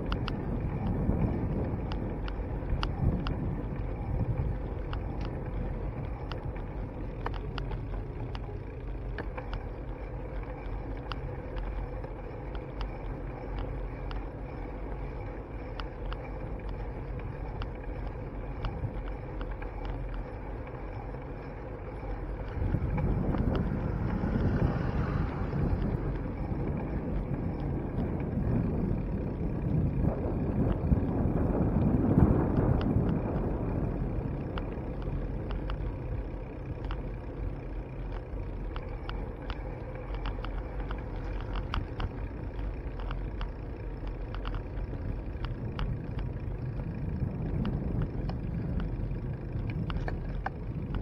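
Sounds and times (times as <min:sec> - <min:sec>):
wind rushing over microphone: 0:00.0 - 0:08.0, 0:22.3 - 0:37.2, 0:37.8 - 0:51.0
light ticks and rattles: 0:00.0 - 0:51.0.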